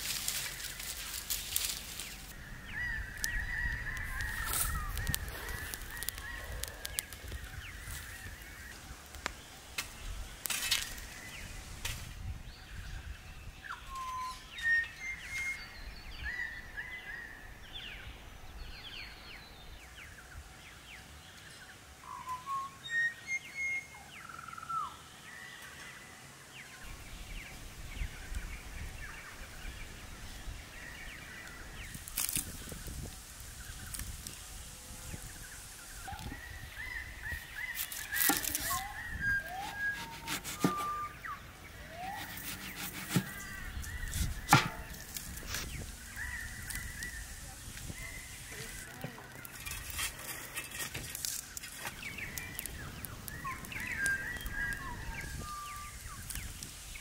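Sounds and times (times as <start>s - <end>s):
dry sticks snapping: 0.0s - 2.4s, 3.2s - 8.1s, 9.0s - 11.0s, 31.4s - 33.1s, 37.8s - 40.9s, 42.0s - 47.1s, 48.5s - 54.9s
birds calling and chirping: 0.0s - 57.0s.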